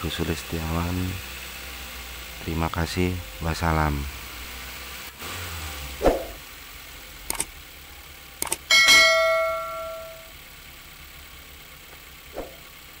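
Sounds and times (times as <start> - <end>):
notification bell ding: 8.7 - 10.3.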